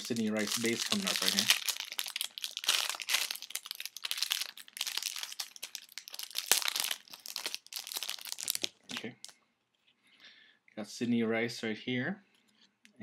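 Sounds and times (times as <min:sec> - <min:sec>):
plastic wrapper crinkling and tearing: 0:00.0 - 0:09.4.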